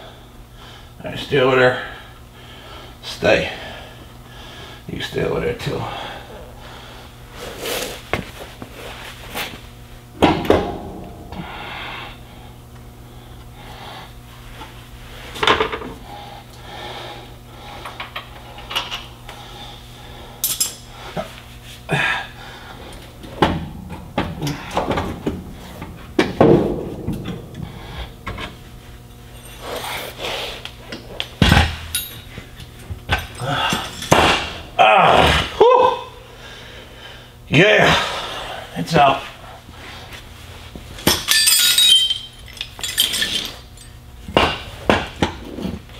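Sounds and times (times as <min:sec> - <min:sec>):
steady low hum: 0:00.0 - 0:45.9
metallic clanks and knocks: 0:10.2 - 0:11.7.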